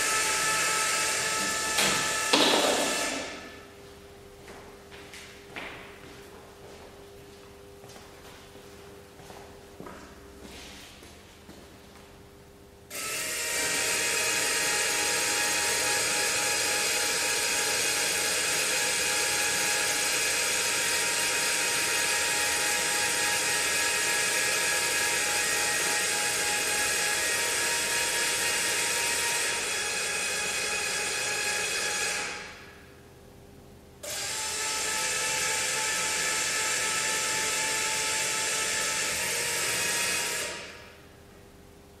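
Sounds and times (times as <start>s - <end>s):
small electric motor whining: 0.0s - 3.4s, 12.9s - 32.6s, 34.0s - 40.9s.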